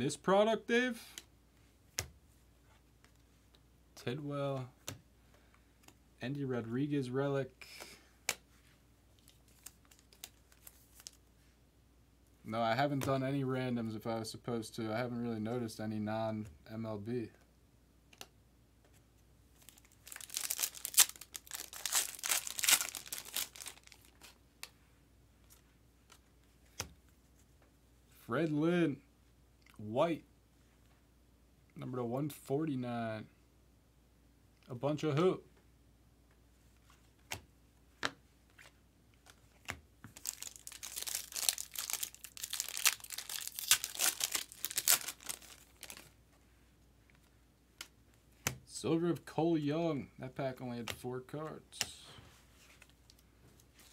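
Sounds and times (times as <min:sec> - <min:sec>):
foil wrapper crinkling: 0:19.6 - 0:24.4, 0:40.2 - 0:46.1.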